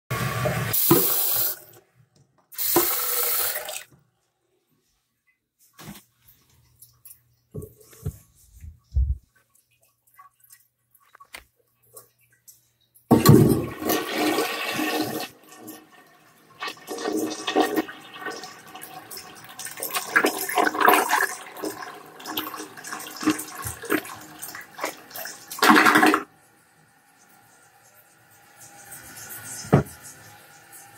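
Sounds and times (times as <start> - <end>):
toilet flushing water rushing: 0.1 - 1.8, 2.6 - 3.9, 13.1 - 26.4.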